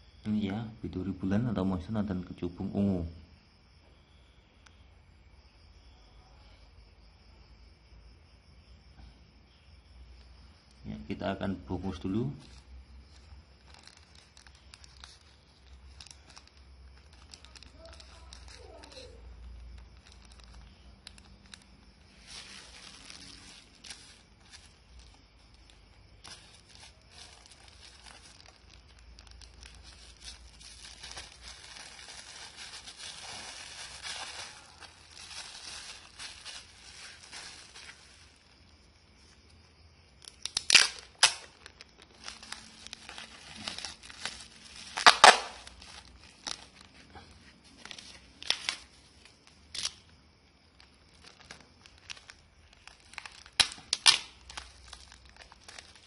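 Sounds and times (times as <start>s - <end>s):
packing material crinkling: 11.9s - 39.6s, 40.2s - 50.1s, 50.7s - 56.0s
sharp tearing sounds: 40.2s - 46.9s, 49.7s - 50.1s, 51.5s - 56.0s.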